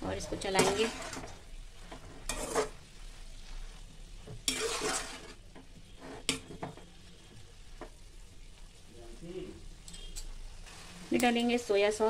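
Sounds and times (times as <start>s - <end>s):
metal spatula scraping pan: 0.0s - 6.9s
frying sizzle: 0.0s - 12.0s.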